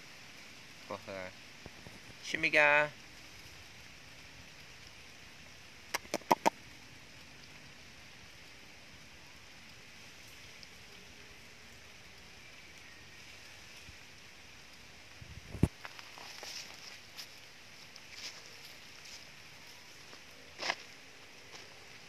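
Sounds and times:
faint outdoor hiss: 0.0 - 22.0
sharp clicks: 6.0 - 6.5.

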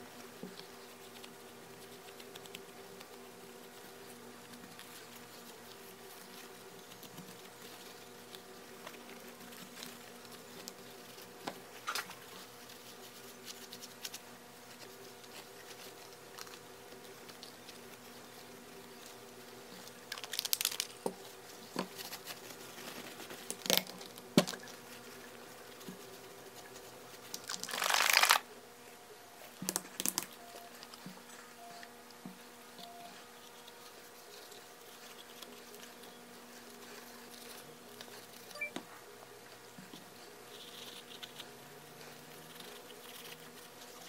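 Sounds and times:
faint buzzing hum: 0.0 - 44.0.

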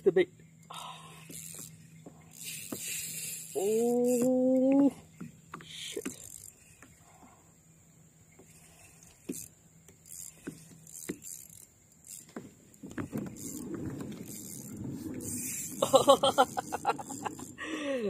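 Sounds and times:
fishing reel clicks: 0.6 - 4.9, 5.5 - 7.0, 8.5 - 15.8.

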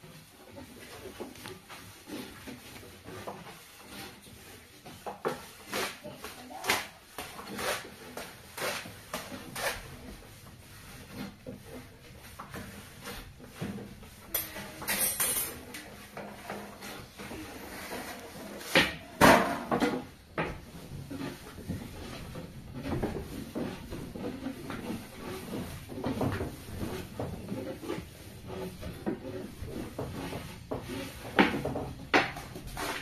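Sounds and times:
pots and utensils clattering: 14.2 - 28.1.

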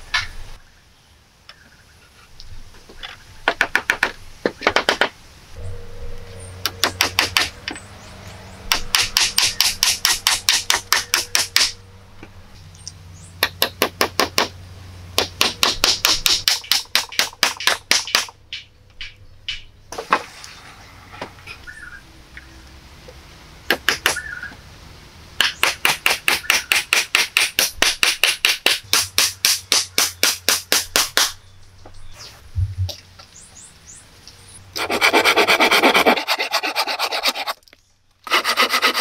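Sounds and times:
hammer tapping wooden poles: 3.4 - 5.1, 6.6 - 7.6, 8.7 - 11.8, 13.4 - 14.6, 15.2 - 19.7, 25.4 - 31.4.

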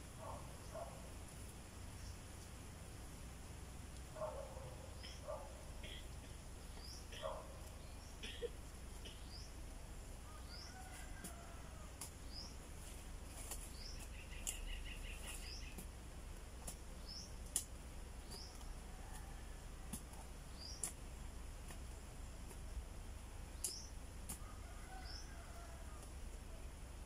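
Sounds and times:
low steady rumble: 0.0 - 27.0
small birds chirping: 3.9 - 27.0.

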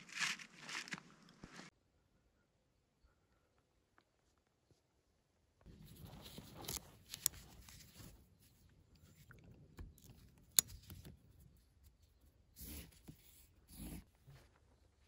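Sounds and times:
hammock rustling and scraping: 0.0 - 1.7, 5.7 - 8.6.

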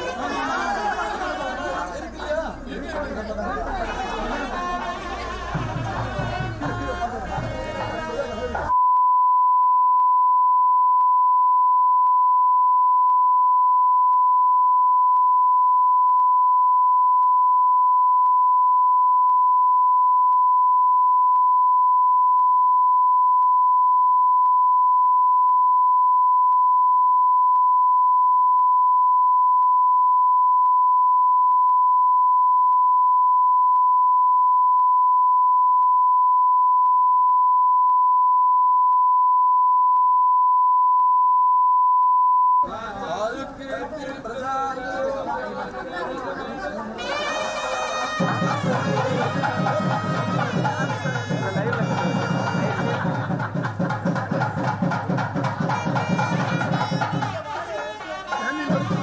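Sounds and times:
steady sine tone: 8.7 - 42.6.

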